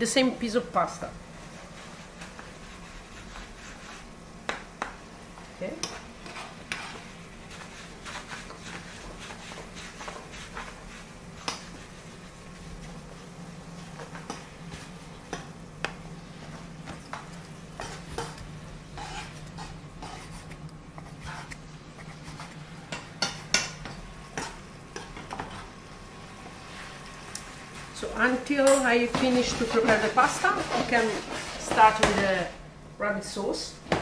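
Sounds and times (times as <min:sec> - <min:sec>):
steady low hum: 0:00.0 - 0:34.0
spoon scraping in metal pan: 0:19.0 - 0:20.3
knife on wooden board: 0:19.0 - 0:21.6.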